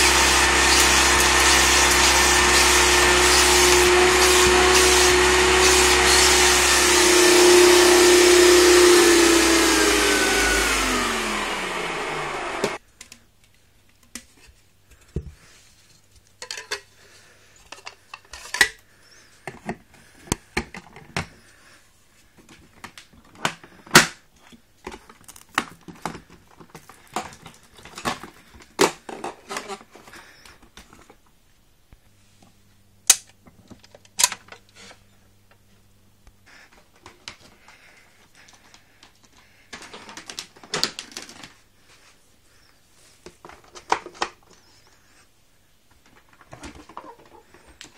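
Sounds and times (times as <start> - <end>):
vacuum cleaner motor winding down: 0.0 - 12.8
clicks and knocks of handling: 12.9 - 15.4, 16.1 - 16.9, 22.4 - 31.3, 43.2 - 44.7.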